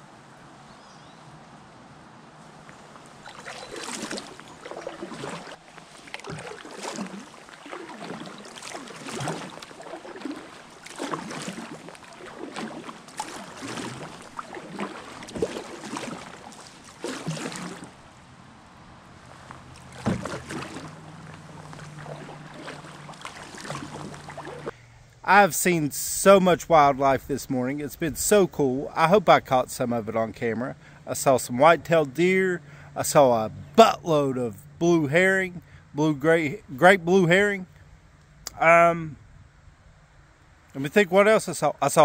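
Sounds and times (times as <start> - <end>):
canoe paddle splashing: 2.4 - 25.3.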